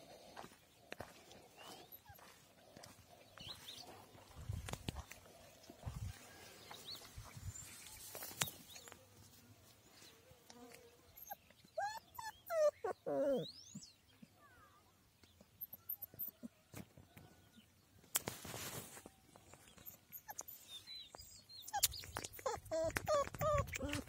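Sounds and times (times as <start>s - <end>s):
footsteps on gravel: 0.2s - 8.7s
puppy whimpering: 11.2s - 13.6s, 19.8s - 20.5s, 21.7s - 24.0s.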